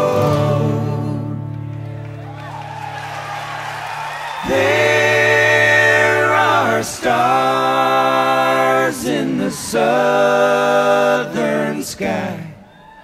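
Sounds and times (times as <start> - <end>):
voices singing held chords: 0.0 - 1.6, 4.4 - 13.0.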